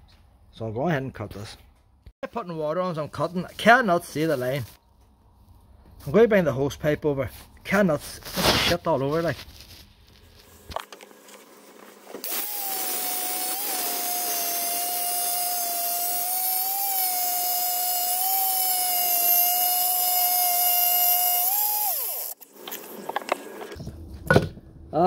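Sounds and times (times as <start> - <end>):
stone-cutting saw whining: 12.2 - 22.4.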